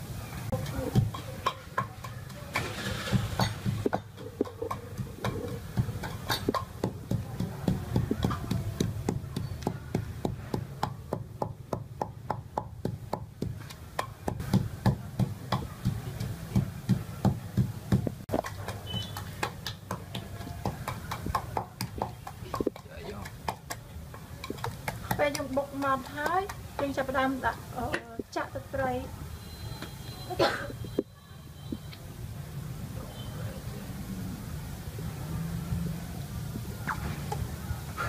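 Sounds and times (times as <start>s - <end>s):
wooden pestle pounding in mortar: 0.6s - 27.0s.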